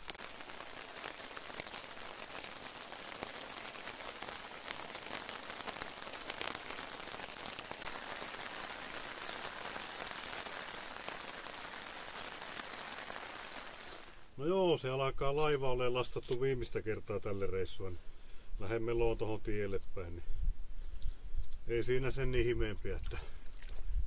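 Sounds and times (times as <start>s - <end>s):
raindrops ticking on tarp: 0.0s - 14.4s
steady rain falling: 0.0s - 14.8s.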